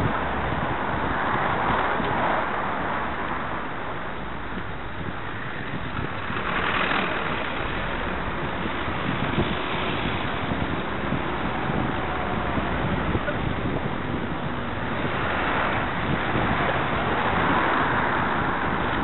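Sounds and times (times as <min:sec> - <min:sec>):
road and traffic noise: 0:00.0 - 0:19.0
wind rushing over microphone: 0:00.0 - 0:19.0.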